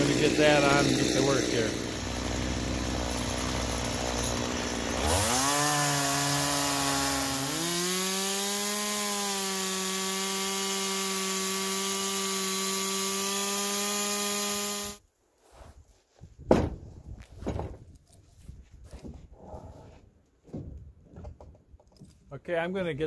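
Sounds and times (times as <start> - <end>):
chain cutting through log: 0.0 - 15.0
chainsaw revving: 0.0 - 15.0.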